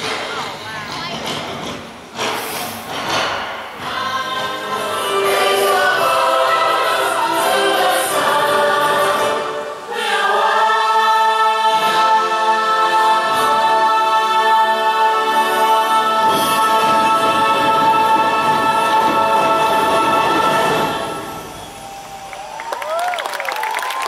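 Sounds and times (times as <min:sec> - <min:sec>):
choir singing long held notes: 0:03.8 - 0:23.0.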